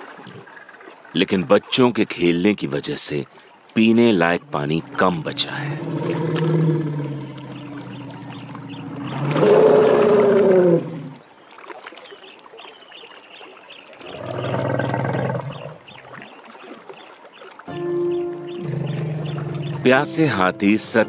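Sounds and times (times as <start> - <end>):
elephants calling: 3.8 - 11.2, 17.7 - 20.4.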